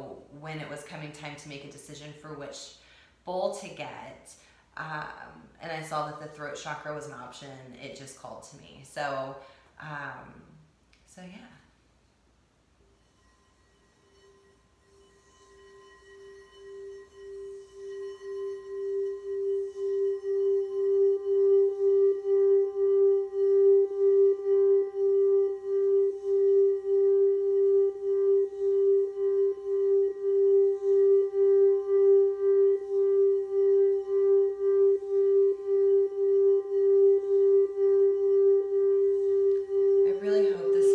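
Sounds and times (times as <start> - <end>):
singing bowl sustained tone: 12.8 - 40.9.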